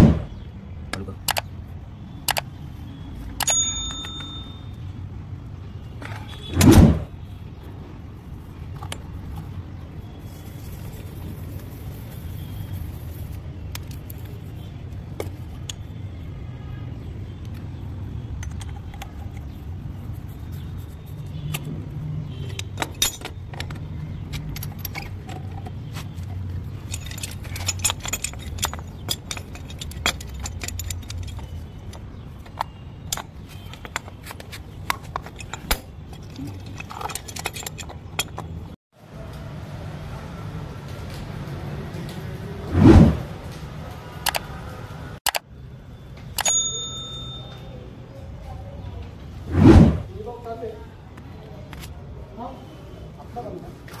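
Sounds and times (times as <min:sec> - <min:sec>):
metal wrench clinks: 0:03.4 - 0:04.9, 0:22.5 - 0:25.7, 0:26.6 - 0:34.4, 0:35.0 - 0:38.6, 0:46.4 - 0:47.8.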